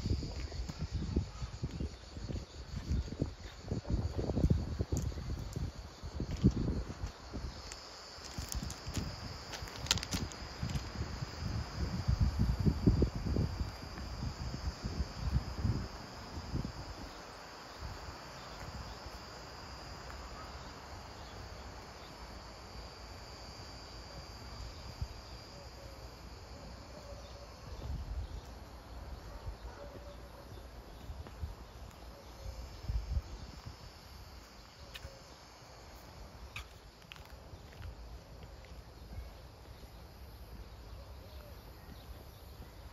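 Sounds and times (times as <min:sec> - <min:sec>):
wind rumble on microphone: 0:00.0 - 0:18.9, 0:27.6 - 0:30.0, 0:32.7 - 0:34.2
insects chirring: 0:00.0 - 0:42.9.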